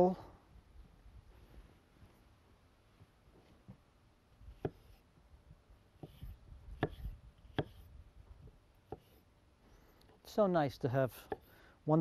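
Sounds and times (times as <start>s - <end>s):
knife slicing fruit: 6.0s - 7.9s.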